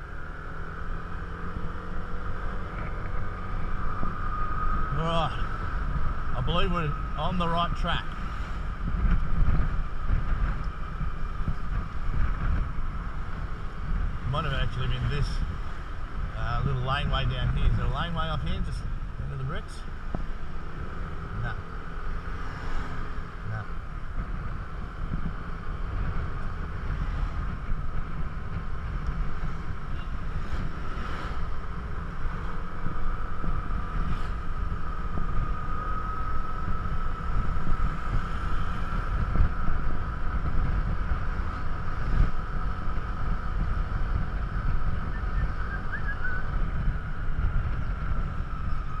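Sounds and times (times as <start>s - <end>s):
scooter engine drone: 0.0s - 49.0s
wind buffeting microphone: 0.0s - 49.0s.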